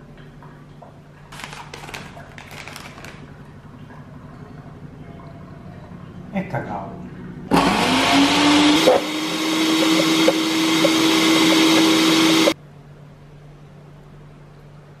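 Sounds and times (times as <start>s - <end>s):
blender motor running: 7.5s - 12.6s.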